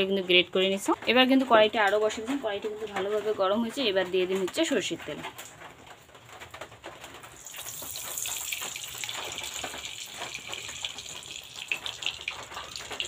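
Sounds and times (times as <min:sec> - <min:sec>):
small crackles: 0:00.9 - 0:13.0
oil hissing and sizzling: 0:07.3 - 0:13.0.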